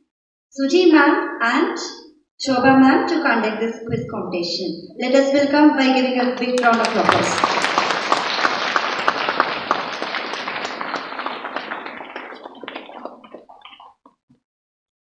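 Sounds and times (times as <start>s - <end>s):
audience applauding: 6.4s - 14.1s.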